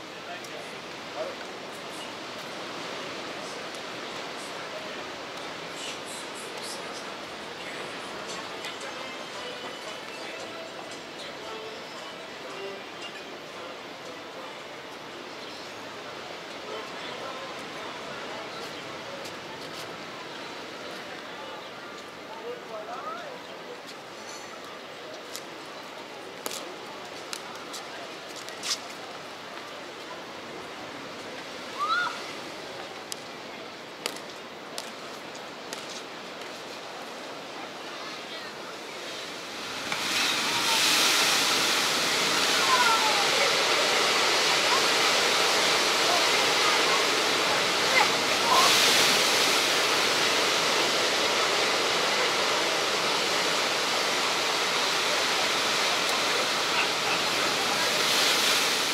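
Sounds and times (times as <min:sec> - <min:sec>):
ocean surf breaking: 0:00.0 - 0:12.8, 0:30.2 - 0:58.9
wave crashing: 0:38.6 - 0:58.9.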